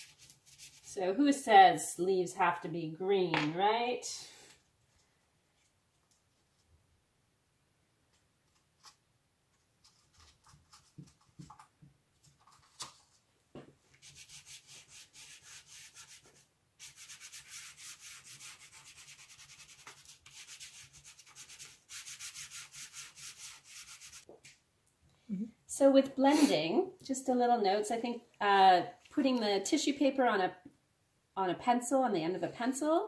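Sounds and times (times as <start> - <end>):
fingers rubbing pastel on paper: 14.0 - 24.3.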